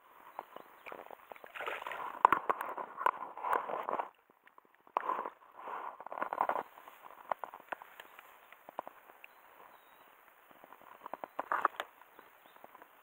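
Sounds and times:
water sloshing and splashing: 0:00.8 - 0:04.1.

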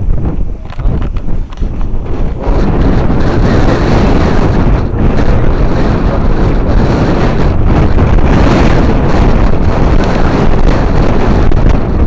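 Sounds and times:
wind blowing across microphone: 0:00.0 - 0:12.0.

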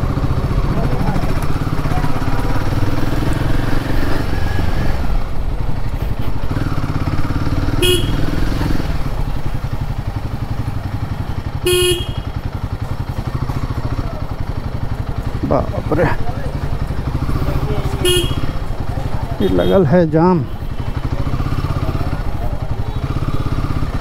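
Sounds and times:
motorcycle engine running: 0:00.0 - 0:24.0
vehicle horn tooting: 0:07.7 - 0:08.4, 0:11.5 - 0:12.5, 0:17.8 - 0:18.7, 0:19.4 - 0:20.0.

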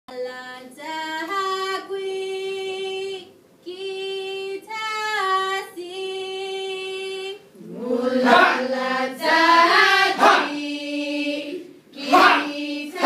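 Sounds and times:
women chanting: 0:07.6 - 0:13.0.

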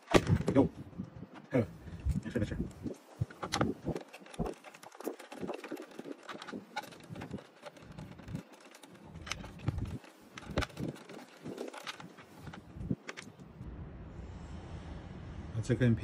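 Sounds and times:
hand tool working servo: 0:02.0 - 0:13.4.

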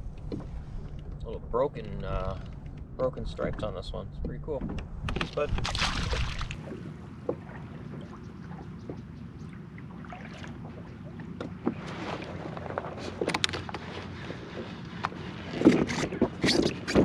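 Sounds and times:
water lapping against kayak hull: 0:04.5 - 0:17.0.

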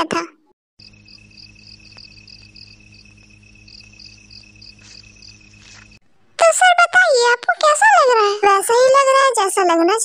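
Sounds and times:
crickets chirping: 0:00.8 - 0:06.0
steady low hum: 0:00.8 - 0:06.4.

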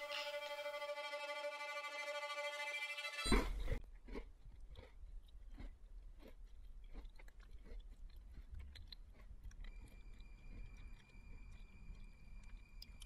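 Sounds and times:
crunchy chewing: 0:03.3 - 0:13.0
faint steady high tone: 0:09.6 - 0:13.0.

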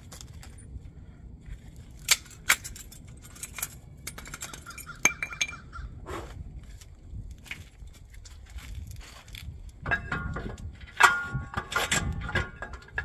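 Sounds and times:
metal objects clinking: 0:02.1 - 0:05.7.

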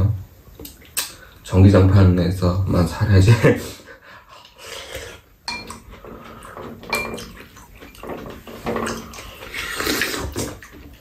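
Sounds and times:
spoon and chopsticks clinking: 0:05.5 - 0:05.8
noodles being slurped: 0:08.4 - 0:11.0.

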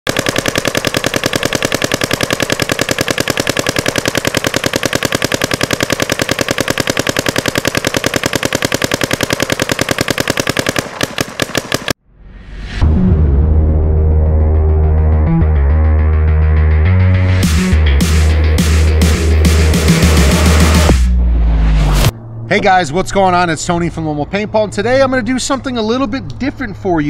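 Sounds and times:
paintball marker firing rapidly: 0:00.1 - 0:12.0
faint rising swell: 0:20.9 - 0:25.8.

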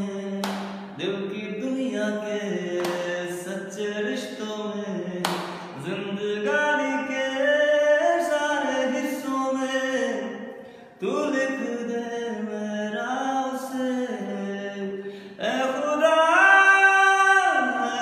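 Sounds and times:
man singing unaccompanied: 0:00.0 - 0:18.0
quick breaths: 0:15.0 - 0:15.4.

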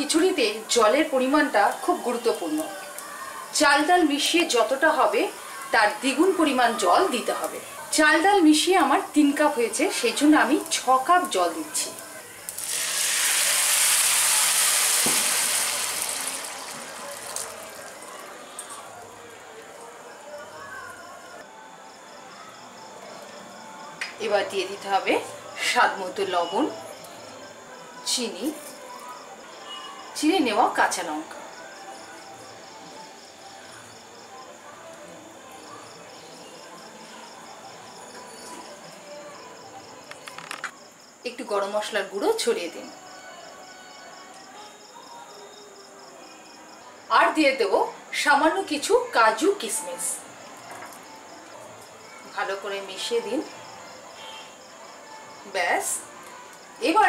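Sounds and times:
water poured into hot pan sizzling: 0:12.4 - 0:18.4.

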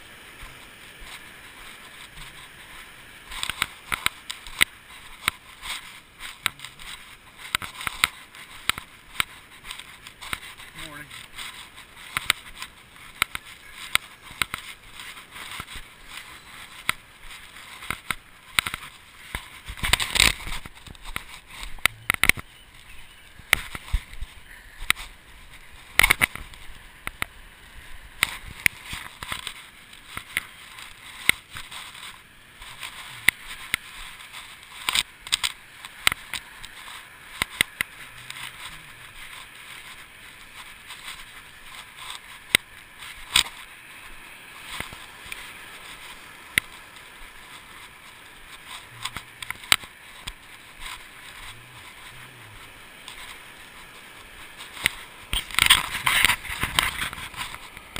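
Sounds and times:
surf: 0:00.0 - 0:57.9
wind: 0:00.0 - 0:57.9.

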